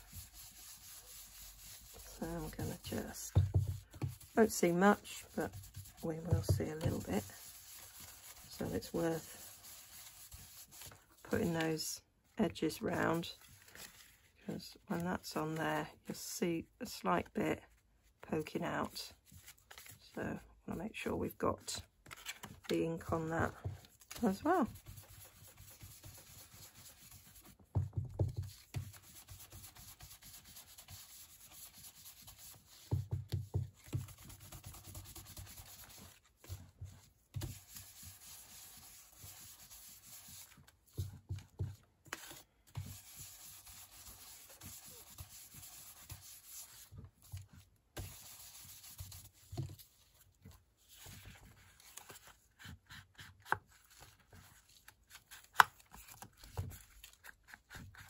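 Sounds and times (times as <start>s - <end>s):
sponge rubbing on cardstock: 0.0s - 11.9s, 23.0s - 27.6s, 28.2s - 50.2s.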